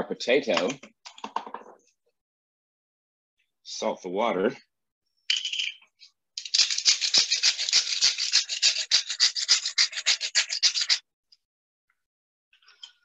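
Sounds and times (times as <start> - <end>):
salt shaker rattling: 5.3 - 5.8, 6.4 - 11.0.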